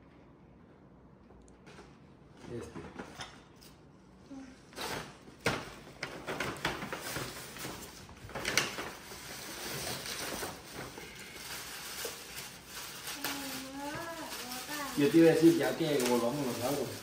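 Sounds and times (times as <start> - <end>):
paper bag rustling and crinkling: 4.8 - 17.0.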